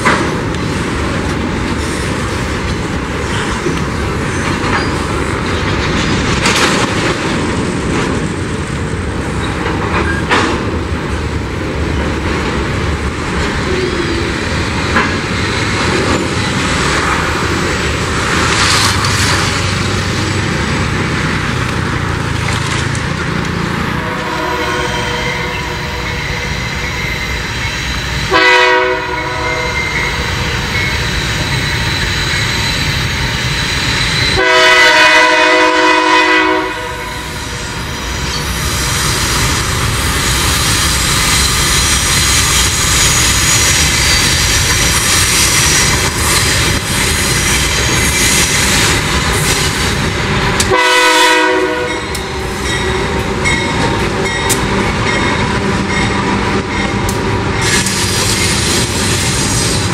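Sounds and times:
train engines and wheels rumbling: 0.0s - 59.9s
locomotive horn blasts: 24.0s - 26.6s, 28.3s - 30.2s, 34.4s - 37.4s, 50.7s - 53.1s.

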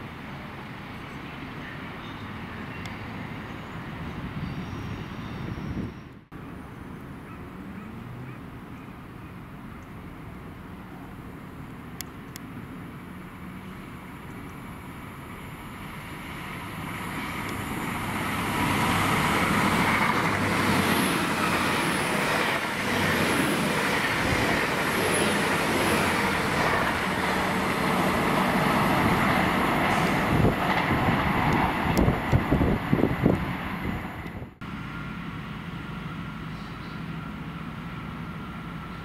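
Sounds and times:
train rumbling past: 12.5s - 39.0s.

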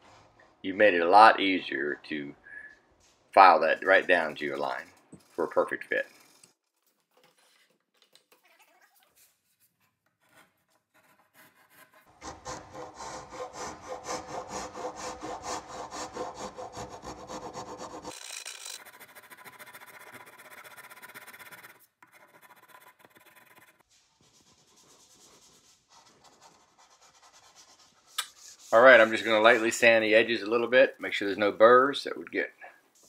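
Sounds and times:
hand file rasping on wood: 10.9s - 21.3s.

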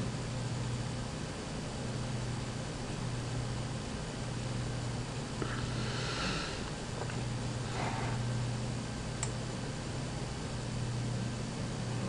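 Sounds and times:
low hum: 0.0s - 12.0s
even hiss: 5.4s - 6.7s.

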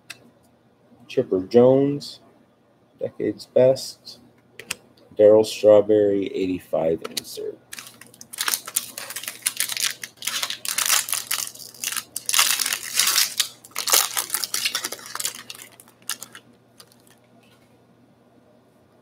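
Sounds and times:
card pack wrappers crinkling: 7.7s - 17.2s.

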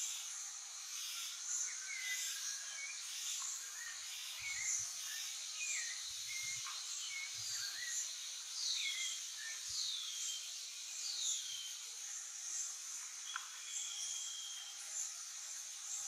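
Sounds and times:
insects buzzing: 0.0s - 16.0s
whistled bird notes: 13.3s - 14.8s.

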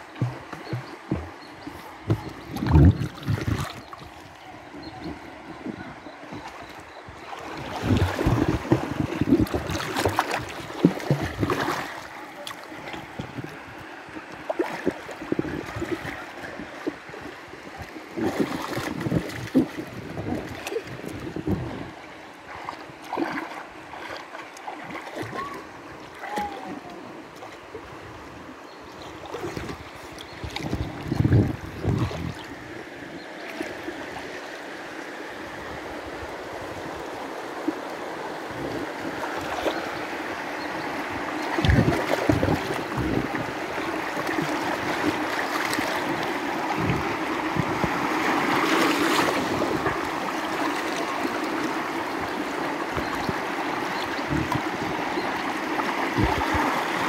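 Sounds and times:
low thumps and splashes: 0.0s - 27.5s, 29.3s - 32.6s, 41.2s - 57.0s
river rapids rushing and splashing: 32.5s - 57.0s.

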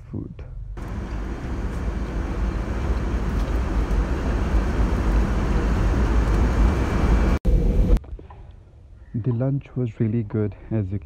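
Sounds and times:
airplane cabin rushing noise: 0.8s - 8.0s.

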